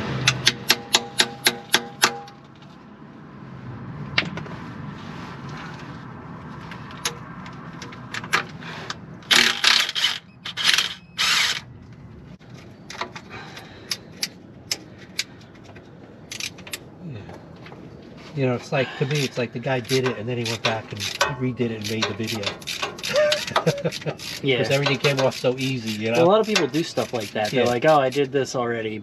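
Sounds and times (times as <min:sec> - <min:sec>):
impact wrench hammering: 0:00.2 - 0:02.4.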